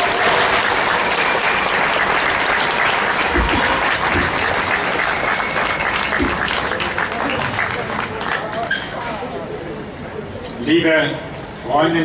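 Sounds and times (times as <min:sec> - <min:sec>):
crowd applauding: 0:00.0 - 0:08.8
low thumps: 0:03.2 - 0:04.9.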